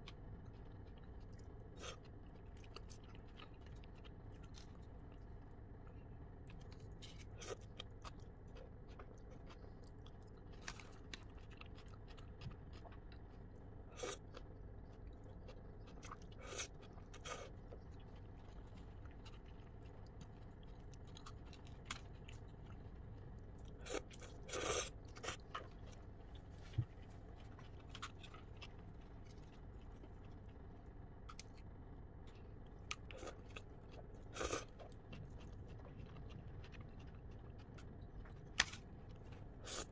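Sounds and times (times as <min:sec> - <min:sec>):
chewing and crunching noodles: 0:00.0 - 0:39.9.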